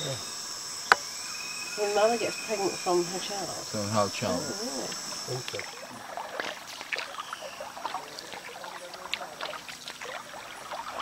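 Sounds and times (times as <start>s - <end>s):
paddle dipping and dripping: 0.0s - 11.0s
water splashing and trickling: 4.9s - 11.0s.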